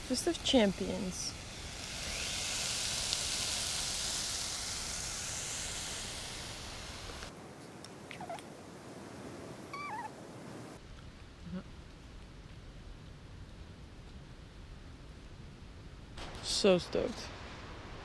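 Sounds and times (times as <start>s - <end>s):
vegetables sizzling in a pot: 0.0s - 7.3s.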